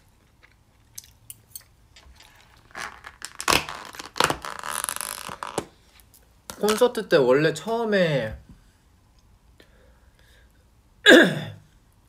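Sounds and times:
plastic packaging crinkling: 2.0s - 5.7s
plastic crackles: 2.0s - 7.0s.

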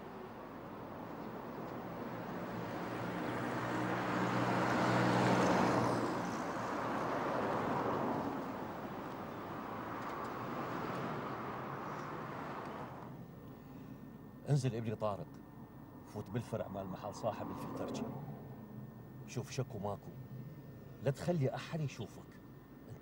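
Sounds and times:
motor vehicle passing by: 1.3s - 13.2s, 17.2s - 19.0s.

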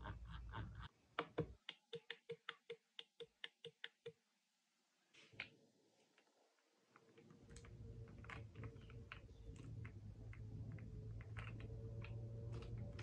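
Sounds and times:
plastic keyboard clicks and taps: 1.2s - 4.2s.

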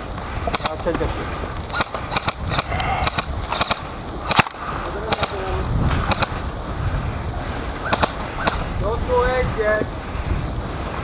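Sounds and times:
airsoft guns firing: 0.5s - 1.0s, 1.7s - 6.5s, 7.8s - 8.7s.

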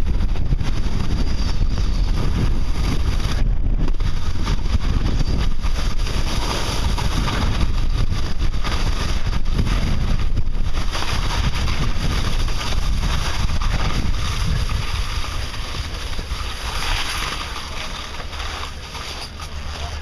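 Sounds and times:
skis sliding over snow: 0.0s - 20.0s
wind buffeting microphone: 0.0s - 20.0s.

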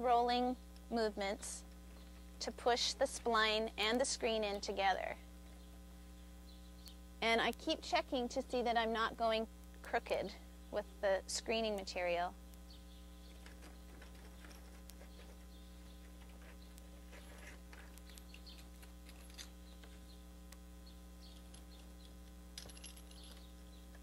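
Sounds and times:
low electrical hum: 0.0s - 24.0s
splining tool clicks and scratches: 13.3s - 20.1s.

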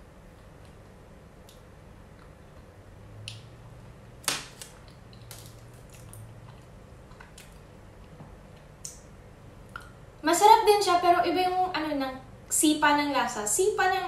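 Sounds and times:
person chewing soft food: 4.8s - 9.0s.

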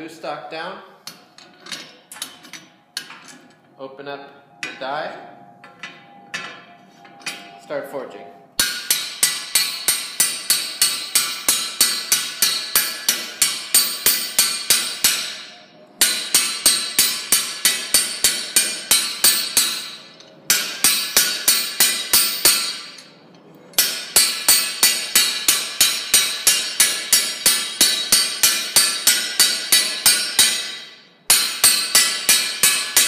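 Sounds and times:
hammer ringing on metal: 8.6s - 23.1s, 23.8s - 33.0s.

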